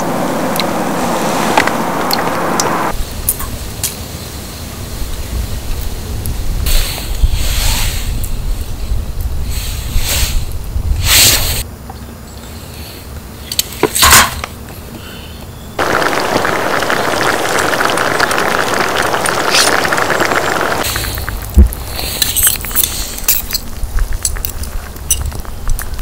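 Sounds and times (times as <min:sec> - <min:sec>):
broth simmering crackle: 0:15.8 - 0:26.0.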